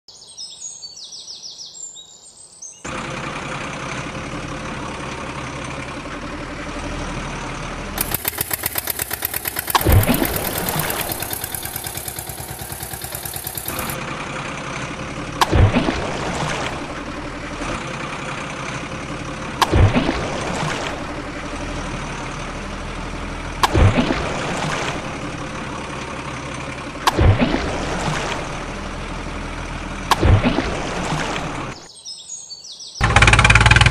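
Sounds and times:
truck engine running: 0:02.9 - 0:31.8, 0:33.0 - 0:33.9
fast rattling: 0:08.0 - 0:14.0.

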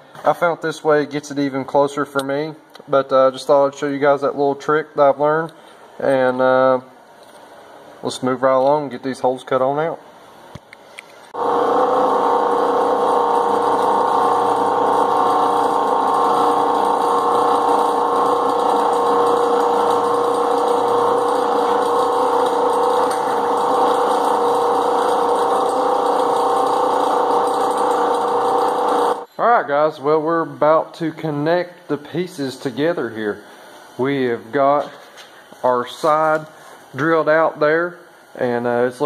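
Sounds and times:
drill press cutting sheet metal: 0:11.4 - 0:29.3.

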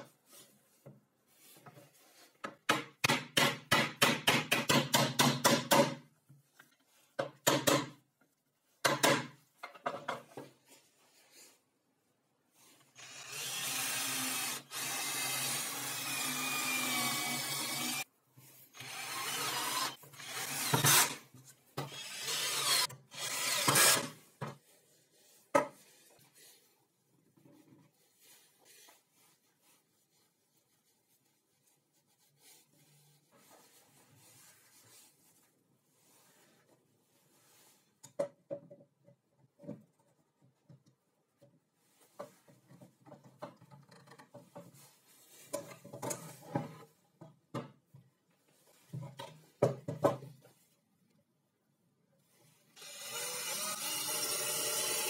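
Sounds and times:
rubbing and handling of wood: 0:00.0 - 0:52.8
cordless drill boring into wood: 0:13.0 - 0:18.0, 0:18.8 - 0:21.2, 0:21.8 - 0:24.1, 0:52.8 - 0:55.0.

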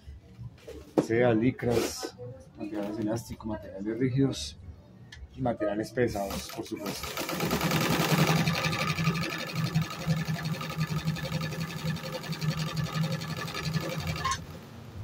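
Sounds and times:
sewing machine stitching: 0:06.2 - 0:14.6.

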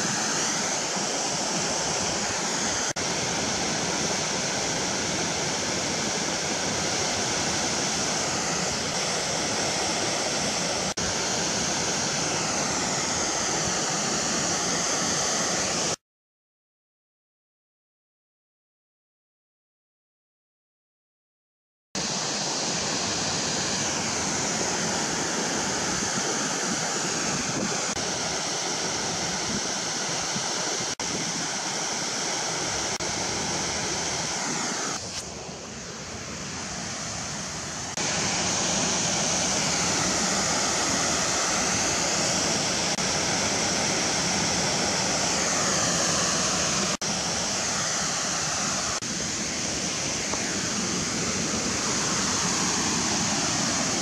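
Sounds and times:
fast-flowing water rushing: 0:00.0 - 0:16.0, 0:22.0 - 0:54.0.

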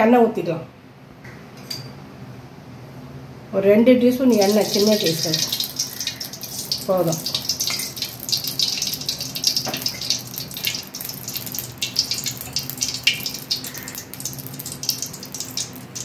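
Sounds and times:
oil sizzling and crackling: 0:04.3 - 0:16.0.

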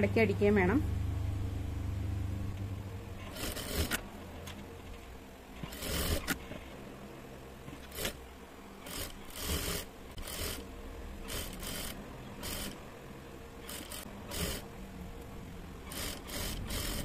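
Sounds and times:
faint motor hum: 0:00.0 - 0:17.0
sewing machine stitching: 0:03.2 - 0:04.0, 0:05.6 - 0:06.6, 0:07.7 - 0:08.2, 0:08.8 - 0:12.8, 0:13.6 - 0:14.7, 0:15.8 - 0:17.0.

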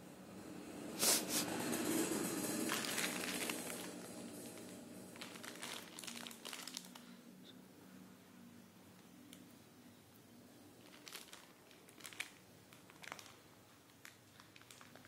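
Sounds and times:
plastic wrapper crinkling: 0:02.6 - 0:07.2, 0:10.8 - 0:15.0.

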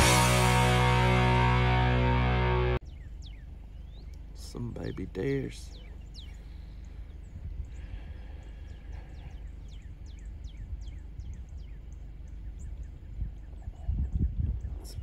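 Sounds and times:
low steady rumble: 0:00.0 - 0:15.0
wild birds chirping: 0:00.0 - 0:15.0.

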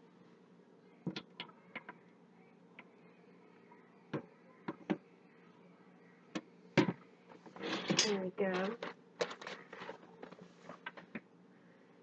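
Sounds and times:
faint steady hum: 0:00.0 - 0:12.0
utensils and containers clicking: 0:07.6 - 0:11.2.

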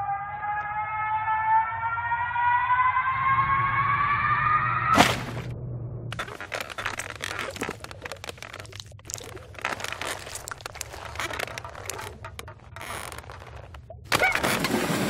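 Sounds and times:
loud creaking: 0:06.1 - 0:14.9
crackling and crinkling foley: 0:06.1 - 0:15.0.

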